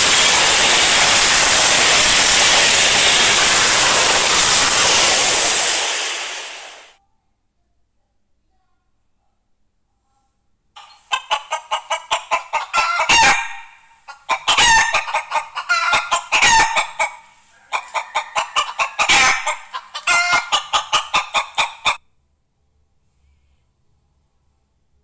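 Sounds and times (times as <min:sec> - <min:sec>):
chicken clucking: 0:10.8 - 0:22.0
chicken squawking: 0:10.8 - 0:22.0.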